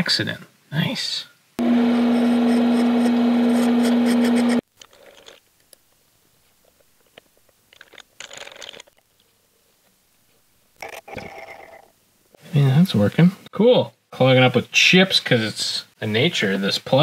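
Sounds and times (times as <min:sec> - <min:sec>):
lathe humming: 0:01.6 - 0:04.6.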